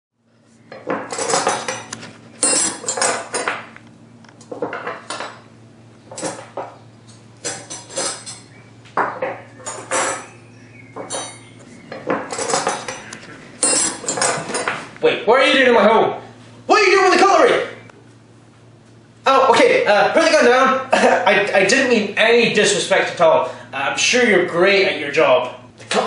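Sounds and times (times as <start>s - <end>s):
metal cutlery clinking: 1.1s - 3.6s, 7.4s - 8.5s, 11.1s - 11.5s, 12.3s - 14.8s.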